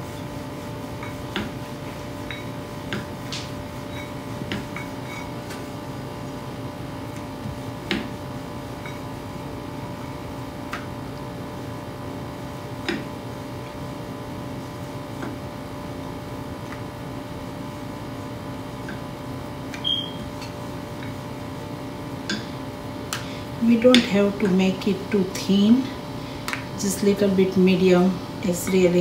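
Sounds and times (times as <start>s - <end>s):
steady machine hum: 0.0s - 29.0s
short squeak: 19.8s - 20.2s.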